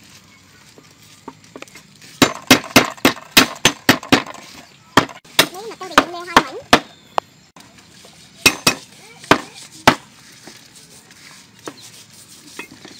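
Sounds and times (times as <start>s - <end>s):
knife chopping on wooden board: 8.4s - 10.1s.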